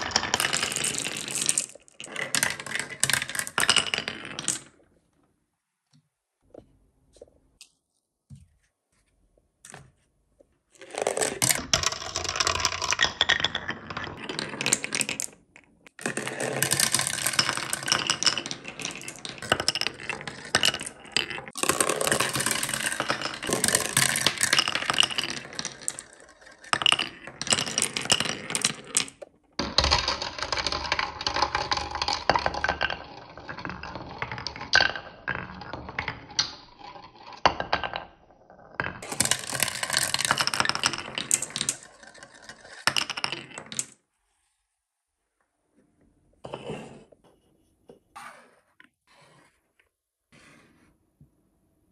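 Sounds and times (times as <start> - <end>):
marbles rattling down plastic track: 0.0 - 4.7, 10.8 - 38.0, 38.8 - 44.0.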